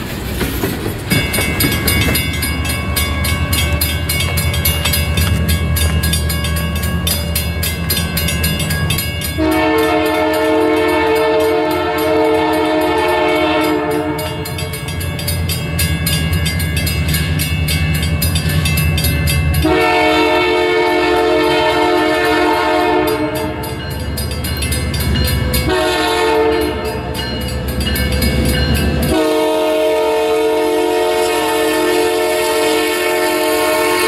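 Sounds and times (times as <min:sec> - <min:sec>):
low train rumble: 0:00.0 - 0:34.0
locomotive air horn blasts: 0:09.4 - 0:14.6, 0:19.6 - 0:23.7, 0:25.6 - 0:27.1, 0:29.0 - 0:34.0.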